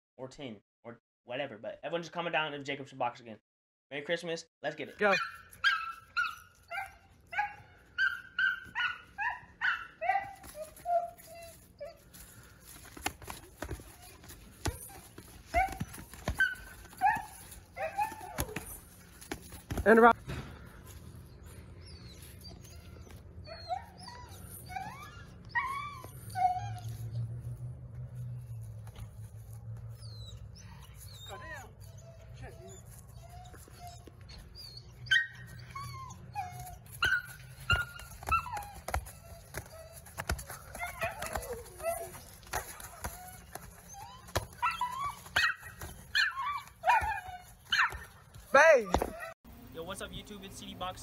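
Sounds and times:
dog barking and whining: 0:05.0 - 0:20.2, 0:21.8 - 0:27.3, 0:29.9 - 0:49.4.

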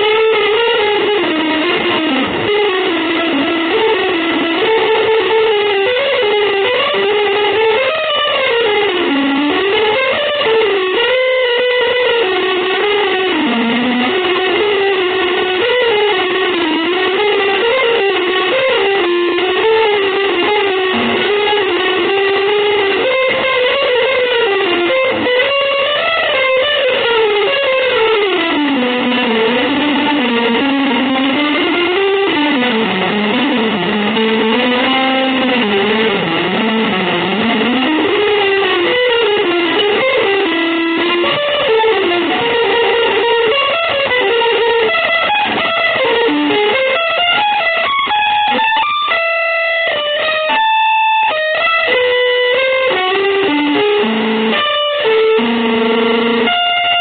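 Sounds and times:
electric guitar improvising: 0:00.0 - 0:57.0.

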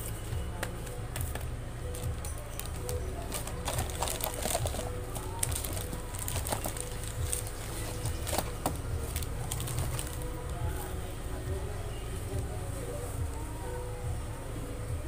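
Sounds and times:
plastic foil sachets crinkling: 0:01.2 - 0:10.7.

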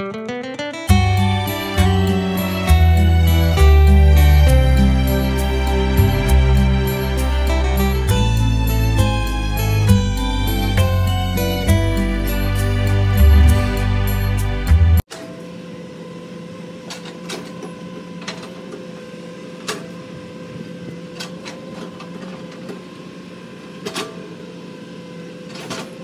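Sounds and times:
excavator engine hum: 0:00.8 - 0:15.0.

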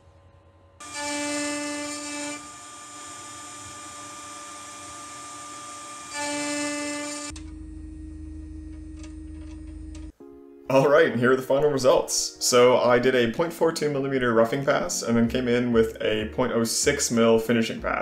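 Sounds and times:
lower machine hum: 0:00.0 - 0:10.1
router spindle whining: 0:00.8 - 0:09.9.

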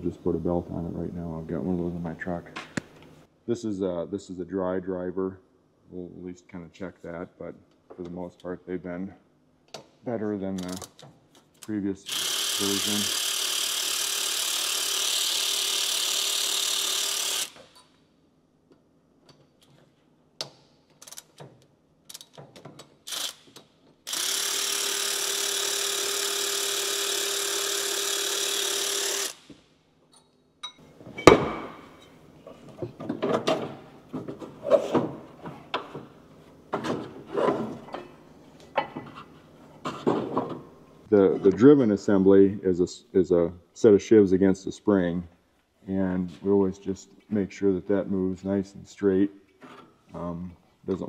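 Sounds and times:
cordless ratchet motor whirring: 0:12.1 - 0:17.8, 0:23.1 - 0:29.5
metal parts clicking and knocking: 0:20.8 - 0:23.7.

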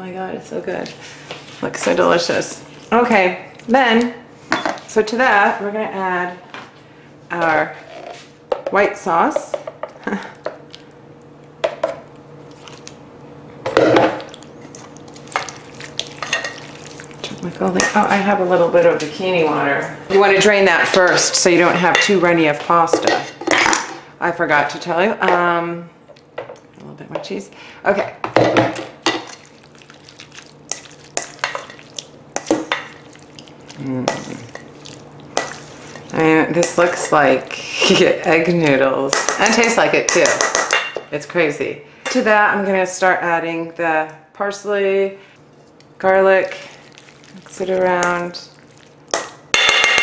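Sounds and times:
wet stirring of noodles in sauce: 0:10.1 - 0:13.1, 0:14.1 - 0:18.7, 0:29.0 - 0:38.0, 0:45.4 - 0:49.5.

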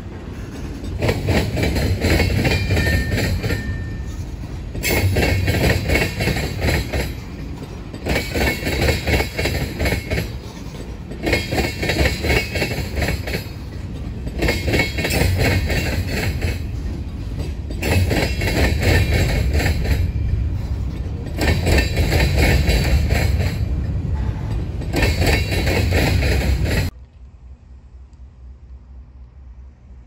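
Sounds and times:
freight train rumbling: 0:00.0 - 0:30.0
wheel clicks over rail joints: 0:04.7 - 0:20.2.

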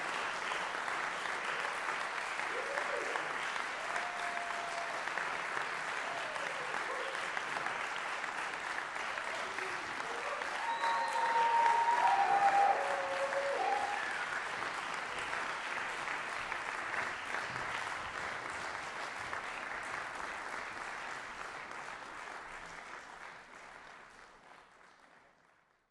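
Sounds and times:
audience applauding: 0:00.0 - 0:25.9
audience cheering: 0:02.4 - 0:07.2, 0:09.1 - 0:14.7.

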